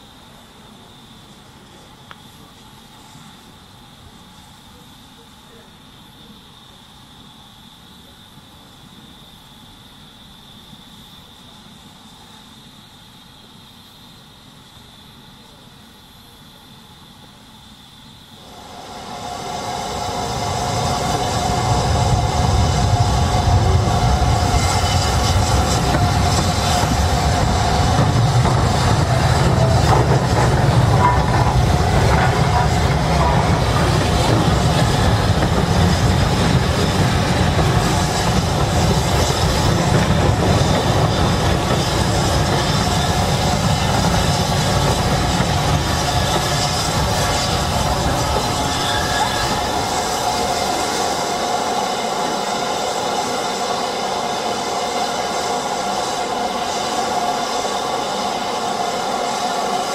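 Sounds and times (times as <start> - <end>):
steam locomotive hissing: 0.0 - 7.4, 15.2 - 59.9
train wheels squealing: 18.4 - 59.9
train wheels clicking over rail joints: 20.9 - 51.3.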